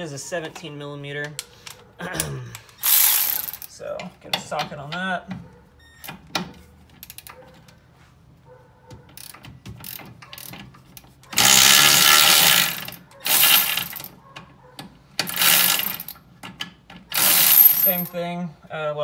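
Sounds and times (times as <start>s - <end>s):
electric ratchet whirring: 2.8s - 3.7s, 11.3s - 14.1s, 15.2s - 16.2s, 17.1s - 18.0s.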